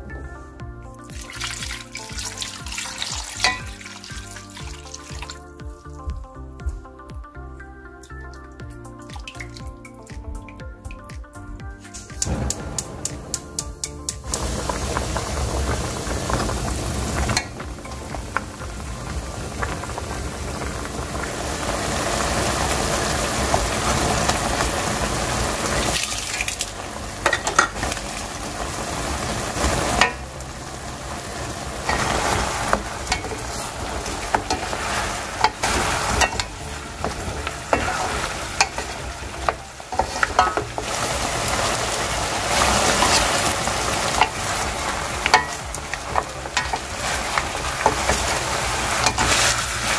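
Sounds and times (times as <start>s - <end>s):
sauce sizzling and bubbling in a pan: 1.1s - 6.1s, 12.1s - 49.9s
spatula stirring against pan: 31.8s - 49.9s.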